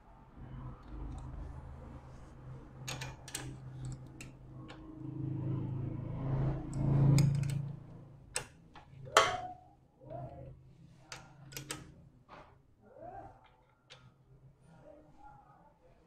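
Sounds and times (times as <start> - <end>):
metallic clicks and taps of tools: 2.8 - 4.8, 6.7 - 9.3, 11.1 - 11.9.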